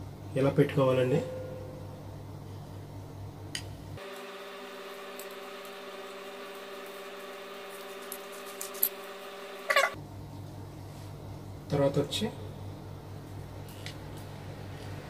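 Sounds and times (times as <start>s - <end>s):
steady hum: 0.0s - 15.0s.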